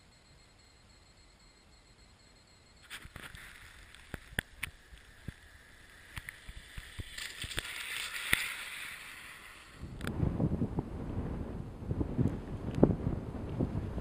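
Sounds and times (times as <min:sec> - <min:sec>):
sharp clicks: 0:01.1 - 0:08.5
bicycle tyre hiss on ice: 0:06.0 - 0:10.0
wind rumble on microphone: 0:09.7 - 0:14.0.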